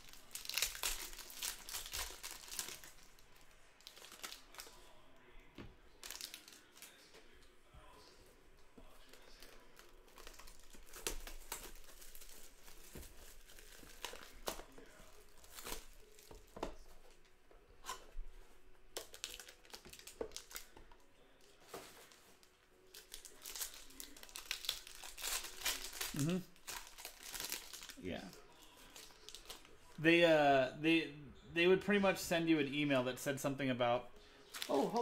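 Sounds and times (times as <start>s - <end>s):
plastic wrapping crinkling and tearing: 0.0s - 5.0s, 6.0s - 7.1s, 8.8s - 17.2s, 18.9s - 30.0s, 34.4s - 35.0s.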